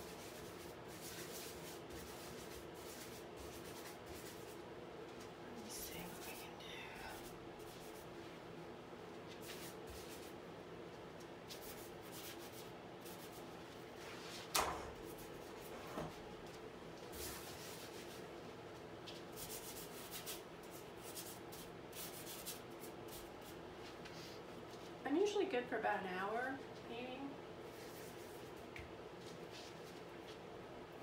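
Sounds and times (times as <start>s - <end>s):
paintbrush scratching on canvas: 0.0s - 4.6s, 5.7s - 8.2s, 9.3s - 10.4s, 11.5s - 14.3s, 19.3s - 23.6s, 27.7s - 28.7s.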